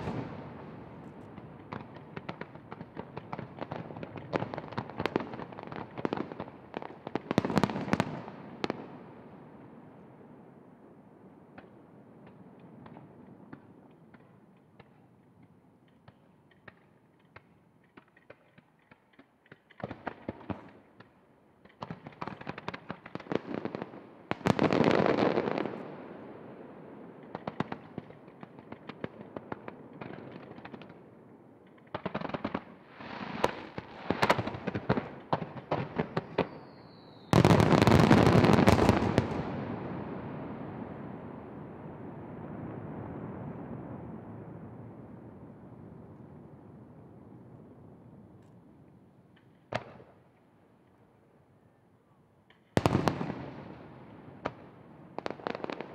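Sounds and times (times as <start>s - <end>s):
falling firework whistle: 36.3s - 39.3s.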